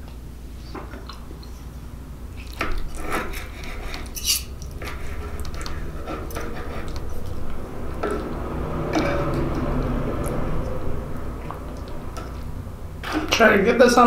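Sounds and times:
knife and fork clinking and scraping: 0:02.4 - 0:07.3.

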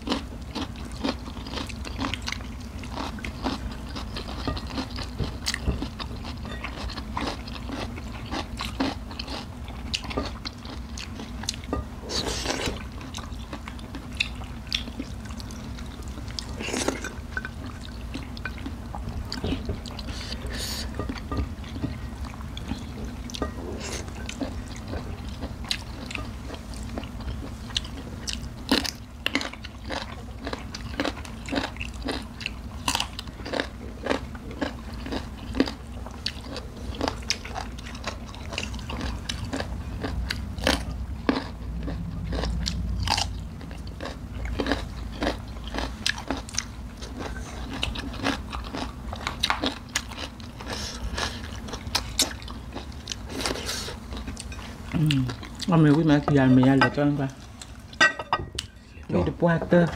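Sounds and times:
crunching and chewing food: 0:00.0 - 0:59.2
low steady hum: 0:00.0 - 0:59.9.

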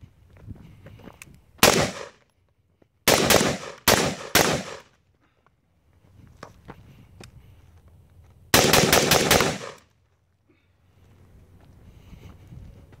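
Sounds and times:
gunshots with echo: 0:01.6 - 0:02.1, 0:03.1 - 0:04.8, 0:08.6 - 0:09.8.

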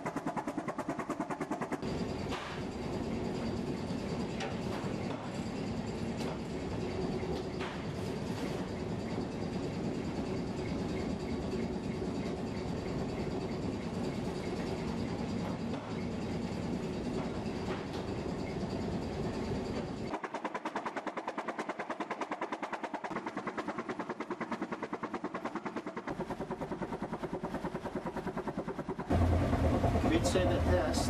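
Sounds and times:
ship engine running: 0:08.8 - 0:31.0.

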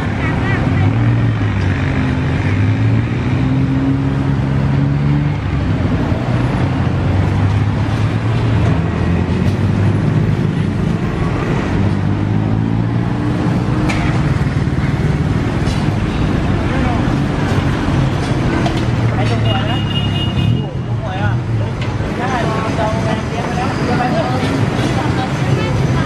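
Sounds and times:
street traffic noise: 0:00.0 - 0:26.0.

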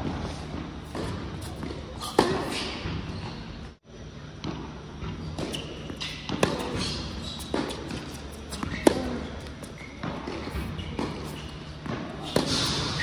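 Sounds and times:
tennis ball bouncing on court: 0:00.0 - 0:03.4, 0:04.4 - 0:13.0
tennis ball off racket strings: 0:05.4 - 0:13.0.

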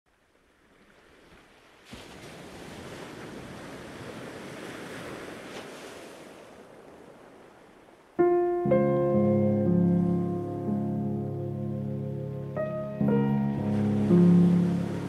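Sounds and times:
sea surf washing: 0:00.6 - 0:15.0
solo piano chords: 0:08.2 - 0:15.0.

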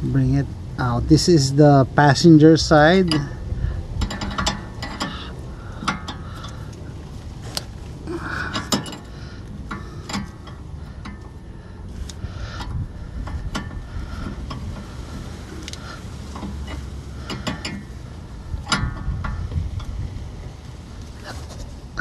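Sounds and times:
wrench clicking on metal: 0:03.0 - 0:03.4, 0:04.0 - 0:06.7, 0:15.7 - 0:20.0.

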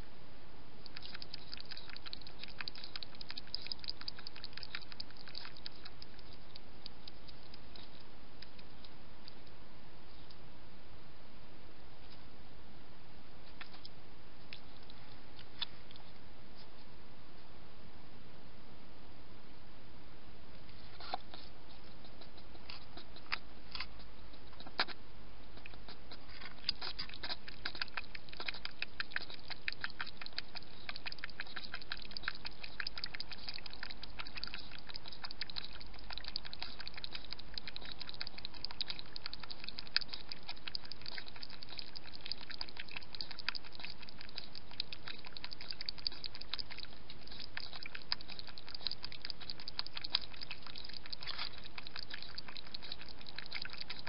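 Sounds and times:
hedgehog lapping water: 0:00.8 - 0:09.5, 0:13.5 - 0:13.9, 0:20.8 - 0:54.0.

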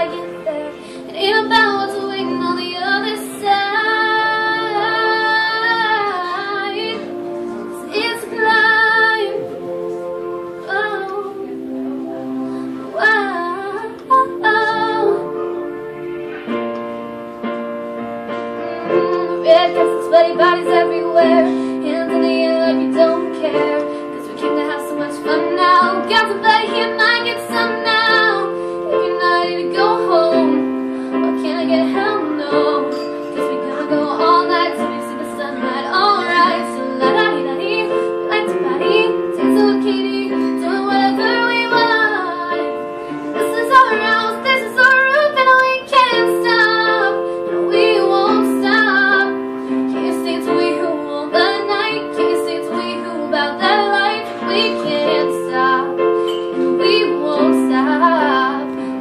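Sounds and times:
girl singing: 0:00.0 - 0:15.8, 0:18.9 - 0:59.0
keyboard piano chords: 0:00.0 - 0:59.0.

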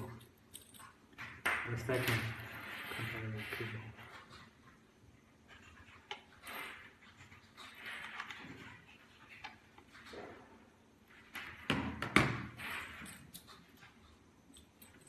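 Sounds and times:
handling rustles and clicks: 0:00.0 - 0:04.8, 0:12.8 - 0:15.0.

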